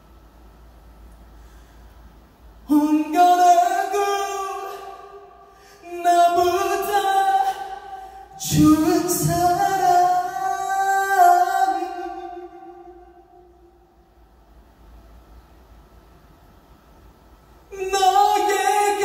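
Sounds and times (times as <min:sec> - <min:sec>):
man singing a ballad: 0:02.7 - 0:05.2, 0:05.8 - 0:13.5, 0:17.7 - 0:19.0.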